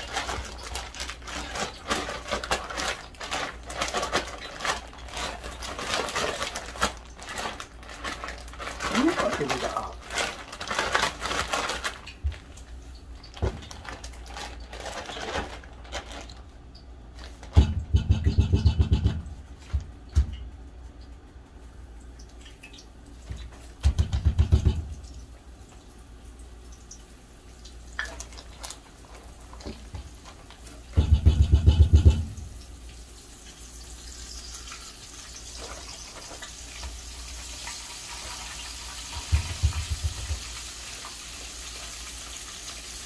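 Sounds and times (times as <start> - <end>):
plastic bag crinkling: 0.0 - 17.6, 28.0 - 30.9, 34.6 - 37.5.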